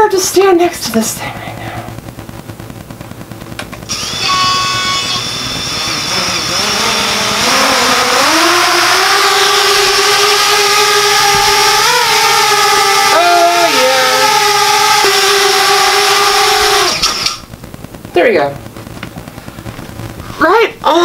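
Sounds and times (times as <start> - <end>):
quadcopter motors whining: 3.9 - 17.4.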